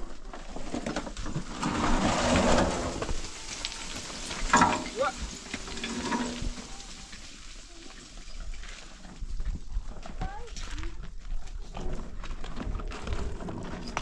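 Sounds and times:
gravel pouring down slope: 0.0 - 9.1.

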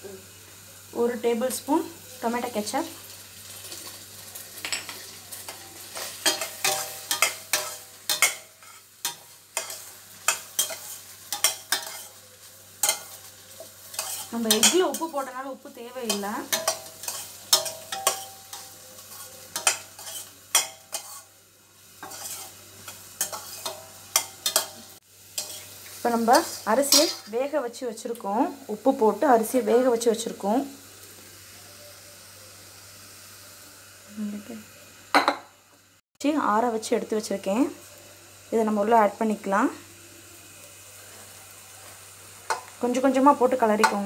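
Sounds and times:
frying sizzle: 0.0 - 44.0
spatula scraping a metal pot: 4.8 - 12.2, 12.8 - 15.2, 16.1 - 21.3, 22.0 - 22.6.

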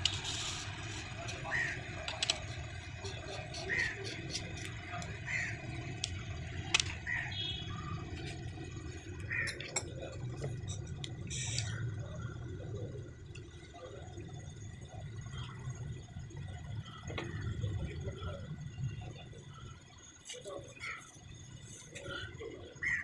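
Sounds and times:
clicks and taps of engine parts: 0.0 - 5.2, 6.0 - 7.0
low background hum: 0.0 - 23.0.

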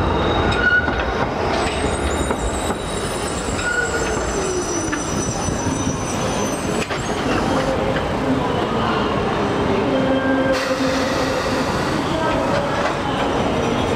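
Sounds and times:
tram wheels rumbling on rails: 0.0 - 13.9
high-pitched wheel squeals: 1.6 - 7.6.

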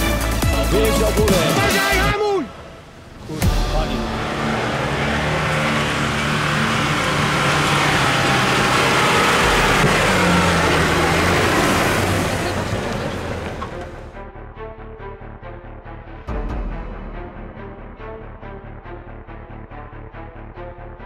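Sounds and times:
engine pulling under load: 3.8 - 14.2.

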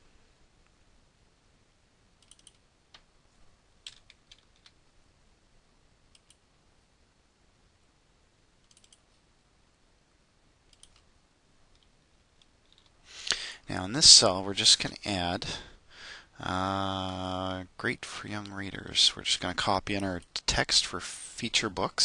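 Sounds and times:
computer mouse clicks: 2.2 - 3.1, 6.1 - 6.4, 8.6 - 9.2, 10.7 - 11.1.

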